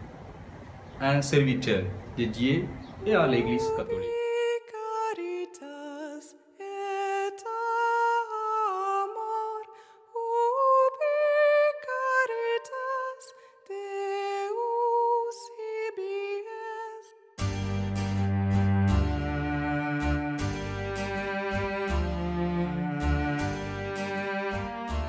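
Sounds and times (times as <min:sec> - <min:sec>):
person singing unaccompanied: 0:03.0 - 0:17.0.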